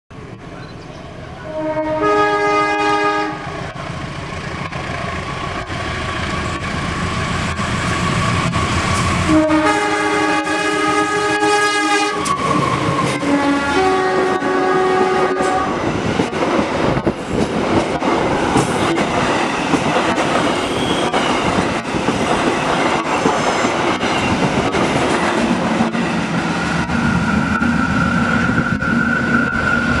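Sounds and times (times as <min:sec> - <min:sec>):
locomotive chord horn blasts: 0:01.4 - 0:03.6, 0:09.2 - 0:12.4, 0:13.1 - 0:15.8
train wheels clicking over rail joints: 0:15.8 - 0:29.0.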